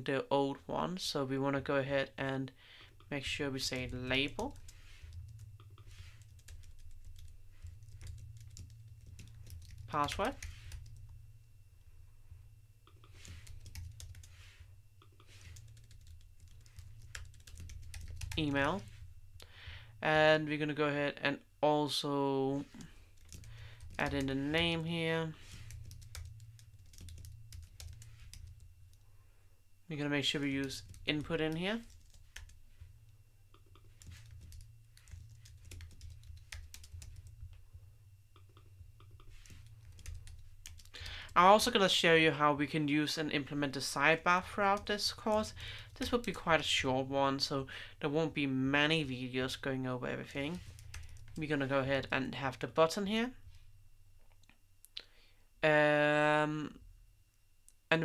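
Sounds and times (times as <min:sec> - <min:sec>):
steady low hum: 0:00.0 - 0:58.0
keyboard typing: 0:03.6 - 0:11.2, 0:12.9 - 0:14.4, 0:15.0 - 0:18.9, 0:22.7 - 0:24.8, 0:25.4 - 0:29.0, 0:30.4 - 0:32.6, 0:33.5 - 0:37.5, 0:38.3 - 0:41.3, 0:50.5 - 0:51.4.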